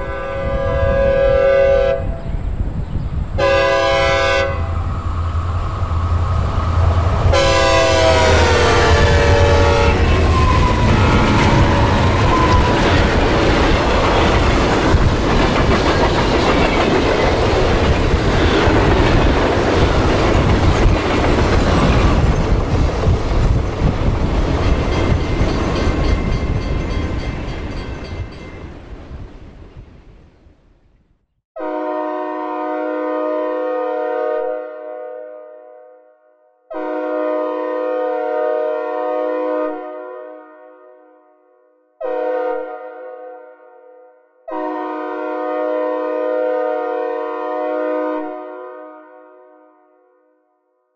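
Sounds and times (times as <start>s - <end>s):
train air horn blasts: 0.0s - 2.2s, 3.4s - 5.2s, 6.0s - 12.9s, 31.6s - 50.3s
train rumbling and clattering: 2.0s - 30.1s.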